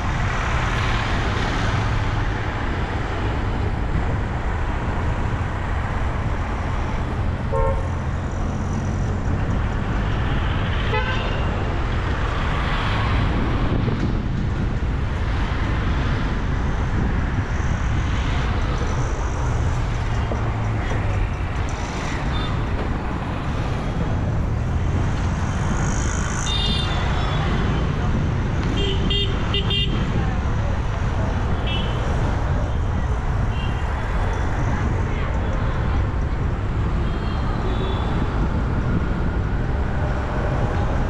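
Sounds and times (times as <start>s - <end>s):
engine and road rumble: 0.0s - 41.0s
vehicle horn toots: 7.5s - 7.9s
passers-by voices: 29.4s - 37.7s.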